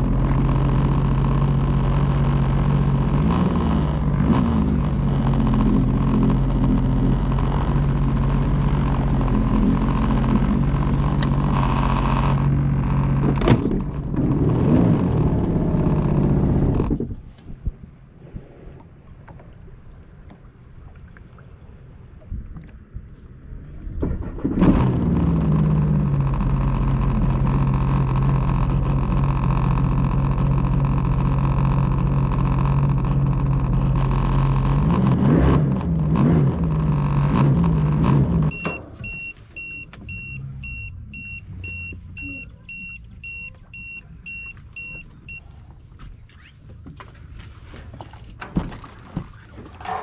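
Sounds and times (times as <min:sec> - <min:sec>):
watercraft engine idling: 0:00.0 - 0:35.2, 0:35.8 - 0:50.0
high electronic beep: 0:38.5 - 0:45.4
light knocks and thump: 0:46.0 - 0:49.8.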